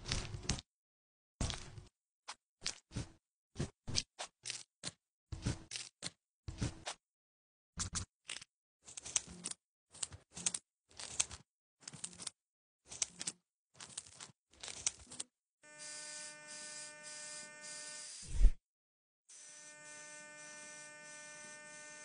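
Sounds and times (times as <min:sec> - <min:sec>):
electric rotary file humming: 0:15.6 - 0:18.3, 0:19.3 - 0:22.0.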